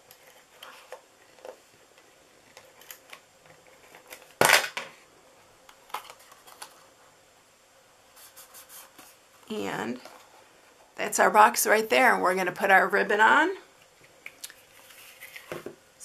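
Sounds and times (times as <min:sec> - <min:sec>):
cardstock being folded: 0:14.2 - 0:15.7.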